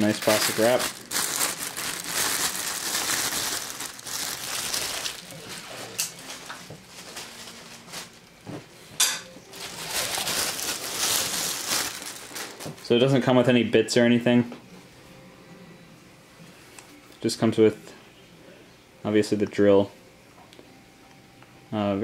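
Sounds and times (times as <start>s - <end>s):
plastic wrap crinkling: 0.0s - 8.4s, 9.5s - 13.3s.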